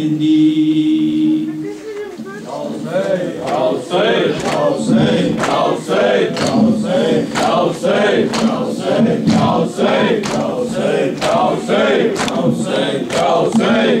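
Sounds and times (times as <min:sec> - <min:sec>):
men chanting a lament: 0:00.0 - 0:01.8, 0:02.4 - 0:14.0
chest-beating in unison: 0:02.8 - 0:14.0.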